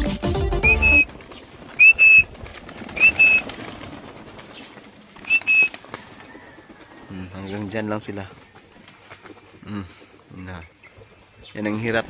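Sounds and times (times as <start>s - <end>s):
short high whistles: 0.6s - 1.1s, 1.8s - 2.2s, 3.0s - 3.4s, 5.3s - 5.7s
pigeon wings flapping: 0.6s - 9.6s, 11.0s - 12.0s.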